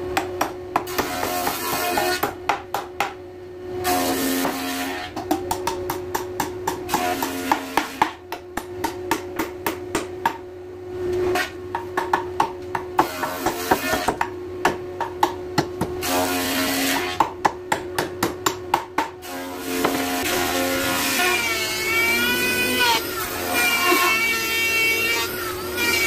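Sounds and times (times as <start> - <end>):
hammer tapping on wooden frame: 11.7 - 15.9.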